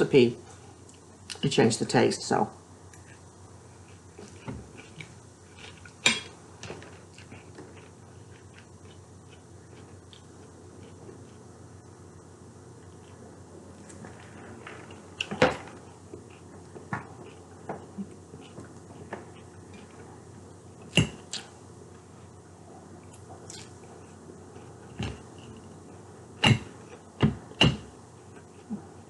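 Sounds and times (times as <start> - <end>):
chewing: 3.8 - 6.0, 6.7 - 11.4, 14.9 - 20.2, 23.0 - 27.0.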